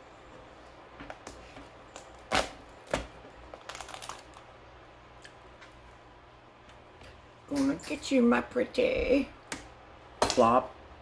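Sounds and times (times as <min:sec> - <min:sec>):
crab shell cracking: 0:03.5 - 0:04.5.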